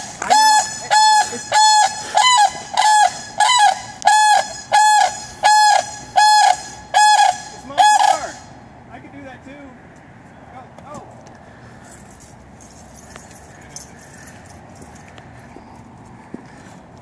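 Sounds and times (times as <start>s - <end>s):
crane calling: 0.0s - 8.8s.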